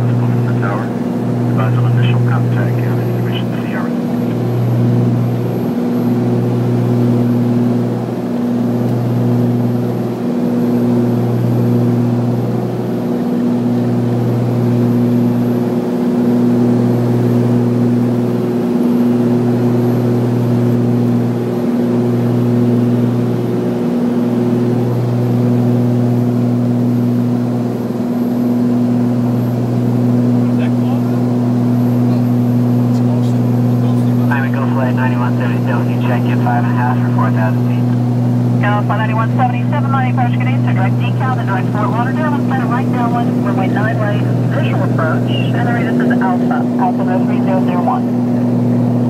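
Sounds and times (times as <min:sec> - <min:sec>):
aircraft engines droning in cabin: 0:00.0 - 0:49.0
propellers pulsing hum: 0:00.0 - 0:49.0.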